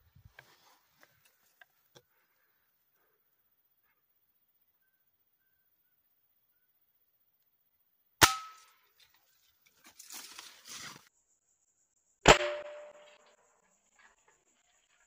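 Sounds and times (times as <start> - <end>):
handling rustle: 8.9 - 11.1.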